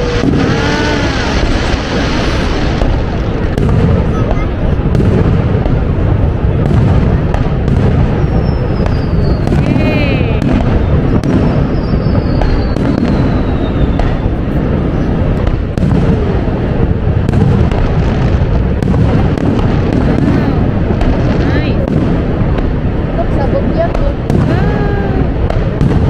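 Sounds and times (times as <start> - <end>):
fireworks falling whistles: 0.0 - 4.4, 7.1 - 16.2
fireworks booming and crackling: 0.0 - 26.0.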